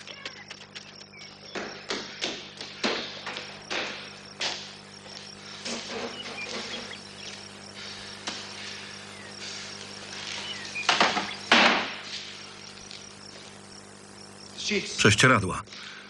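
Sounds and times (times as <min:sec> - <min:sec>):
crickets chirping: 0:00.0 - 0:16.0
knocks and thumps in a room: 0:00.2 - 0:04.7.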